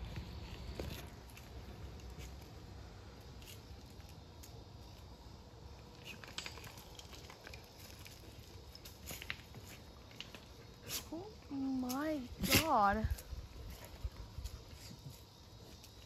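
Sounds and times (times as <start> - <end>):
light clicks and crackles: 5.9 - 16.0.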